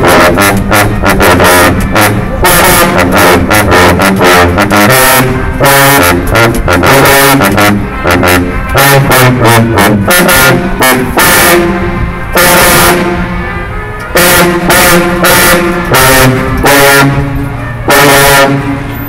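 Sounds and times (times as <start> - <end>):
sousaphones playing a fanfare: 0.0 - 19.0.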